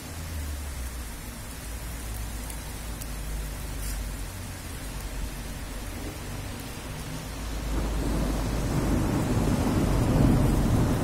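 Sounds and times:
rain falling: 0.0s - 11.0s
thunder rolling: 7.6s - 11.0s.

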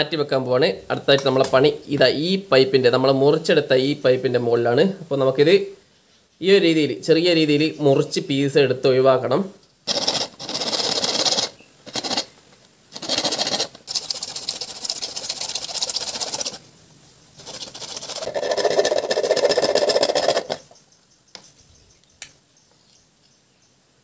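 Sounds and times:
hacksaw sawing plastic pipe: 9.9s - 12.3s, 13.0s - 16.6s, 17.4s - 20.7s.

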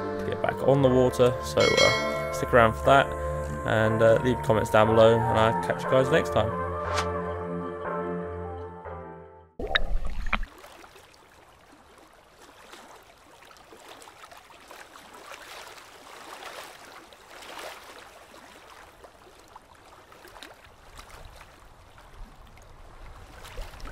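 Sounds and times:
small waves lapping and sloshing: 9.9s - 23.9s.

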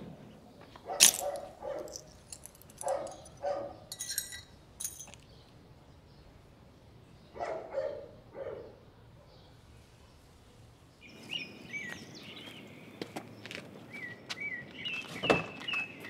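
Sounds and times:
dog barking: 0.8s - 2.1s, 2.8s - 3.9s, 7.3s - 8.8s
light clinks: 1.0s - 5.5s.

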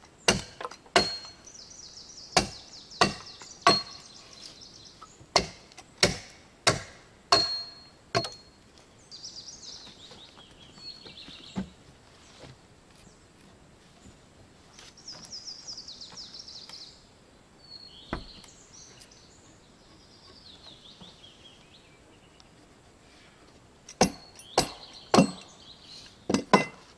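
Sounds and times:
axe chopping wood: 0.3s - 1.4s, 2.4s - 4.0s, 5.3s - 8.4s, 24.0s - 25.5s.

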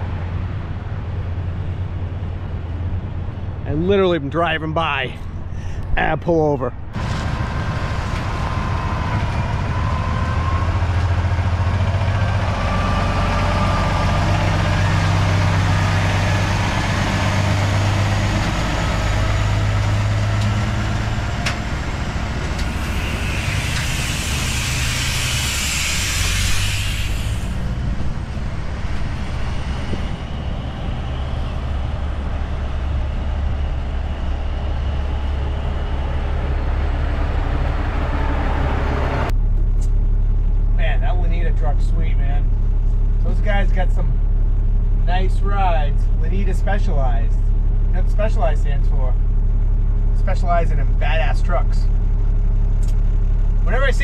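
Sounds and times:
diesel truck engine: 0.0s - 54.0s
faint whine rising in pitch: 18.9s - 39.4s
loud hiss: 22.5s - 27.8s.

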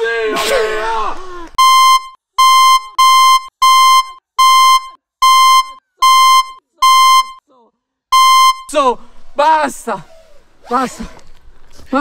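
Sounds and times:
electronic buzzer beeping: 1.6s - 7.4s, 8.2s - 8.7s.

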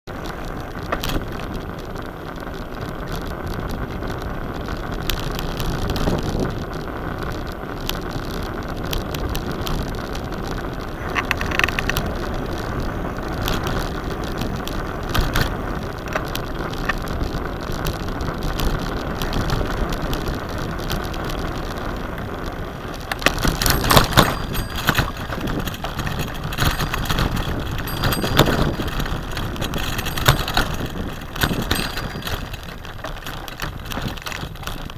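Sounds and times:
bicycle tyre and wind noise: 0.0s - 34.9s
bicycle knocks and rattles: 0.1s - 34.9s.

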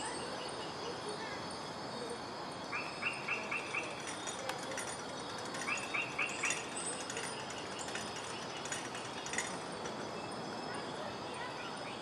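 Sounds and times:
steady background hiss: 0.0s - 12.0s
bird chirping: 2.6s - 11.0s.

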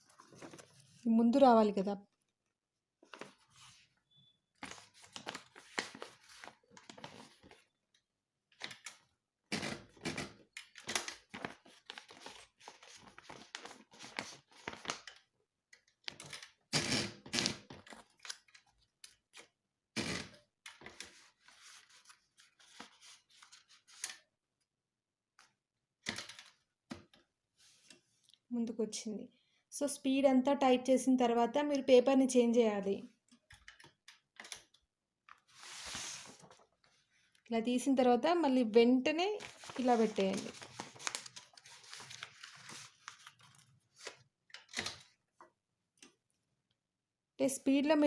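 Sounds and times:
paper rustling and sliding: 0.0s - 1.0s, 4.6s - 7.6s, 20.8s - 24.2s, 35.4s - 36.8s, 39.4s - 44.2s.

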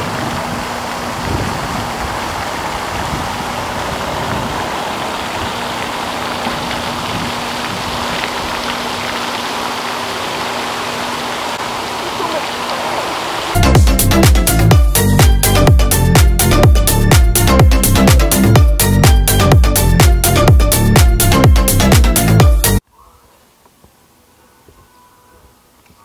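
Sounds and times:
steady rushing noise: 0.0s - 14.8s.

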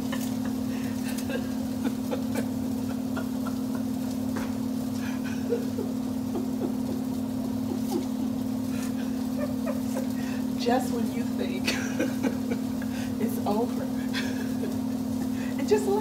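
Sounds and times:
crackles: 0.0s - 16.0s
food sizzling in a pan: 0.0s - 16.0s
steady low hum: 0.0s - 16.0s.

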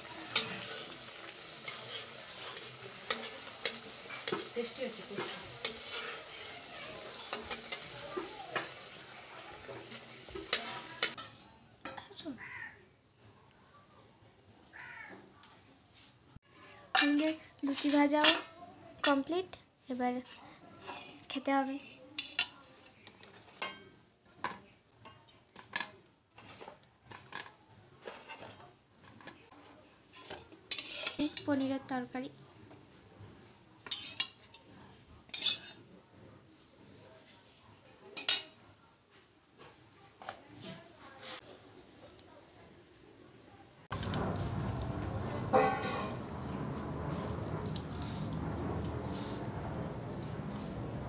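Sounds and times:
hot oil sizzling: 0.0s - 11.2s, 43.9s - 51.0s
steel spatula scraping pan: 0.0s - 11.4s, 30.7s - 31.5s, 33.9s - 34.4s, 44.0s - 51.0s
soft rustle of bread: 15.4s - 16.9s, 32.4s - 43.1s.

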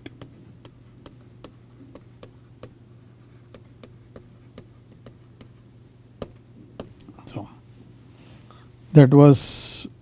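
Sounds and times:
stylus tapping on tablet: 0.0s - 2.8s, 3.5s - 5.6s, 6.2s - 7.1s
faint electrical hum: 0.0s - 10.0s.

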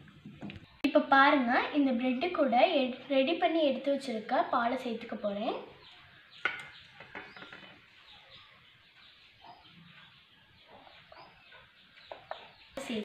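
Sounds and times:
faint bird chirps: 5.6s - 13.0s.

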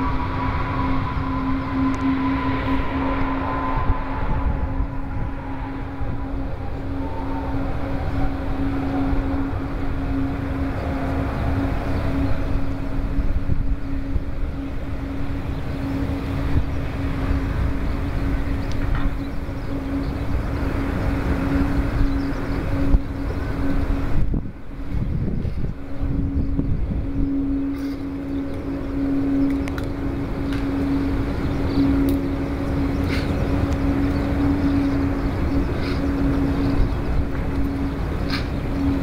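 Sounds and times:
jet engines running at low power: 0.0s - 39.0s.

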